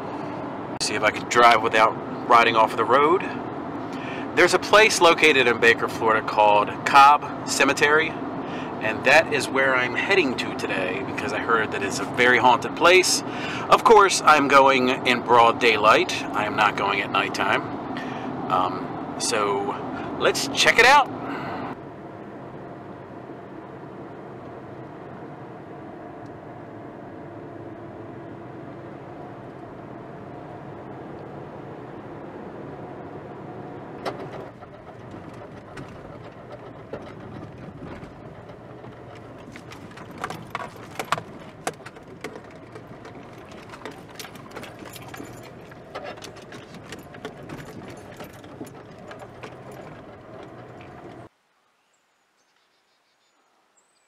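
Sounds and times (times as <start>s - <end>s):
car engine and road drone: 0.0s - 51.3s
tyres crackling on dirt track: 33.8s - 51.3s.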